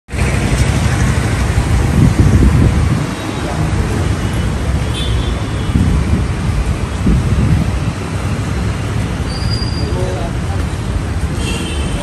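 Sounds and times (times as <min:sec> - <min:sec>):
street traffic: 0:00.1 - 0:12.0
wind buffeting microphone: 0:00.2 - 0:04.0, 0:05.6 - 0:08.8.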